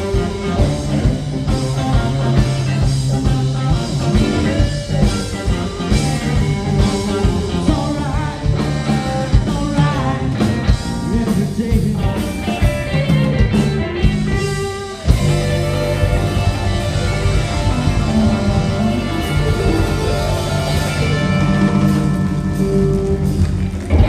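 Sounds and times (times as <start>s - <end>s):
live rock band playing: 0.0s - 24.0s
person singing: 4.1s - 13.2s.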